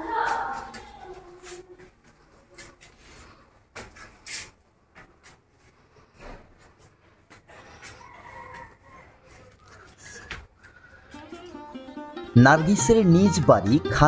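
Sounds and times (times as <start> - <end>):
faint footsteps on stairs: 0.0 - 10.9.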